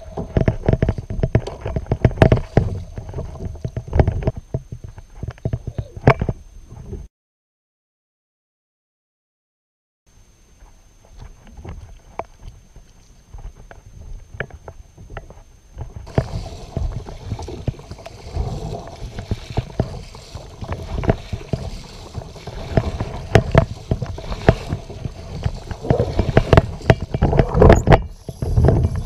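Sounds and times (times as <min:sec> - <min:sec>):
paddle strokes splashing water: 0:00.0 - 0:04.2, 0:16.0 - 0:29.0.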